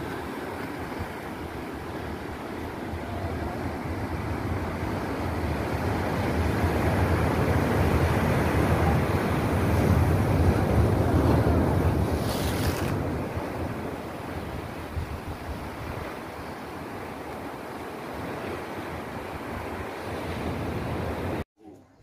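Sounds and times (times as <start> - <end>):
ocean surf over rocks: 0.0 - 21.4
wind buffeting microphone: 0.8 - 17.1.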